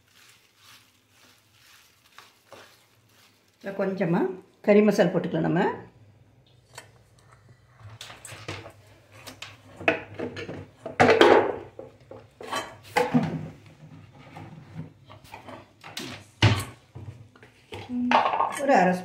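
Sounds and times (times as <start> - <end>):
kitchen utensils clinking and scraping: 8.0 - 16.9.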